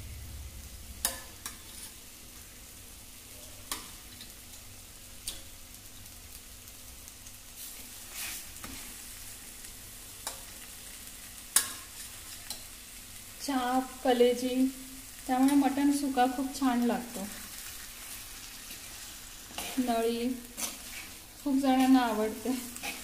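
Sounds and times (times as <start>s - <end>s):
food sizzling in clay pot: 0.0s - 23.0s.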